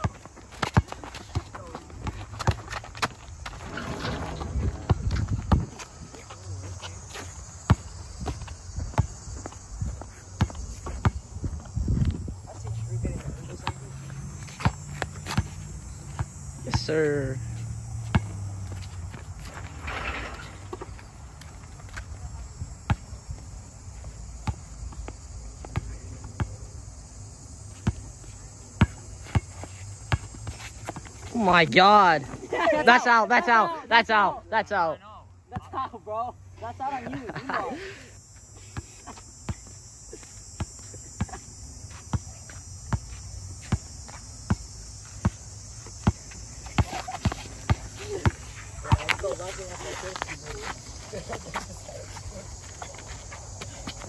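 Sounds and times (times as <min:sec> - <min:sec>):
basketball bouncing on hard court: 0:00.0 - 0:05.8.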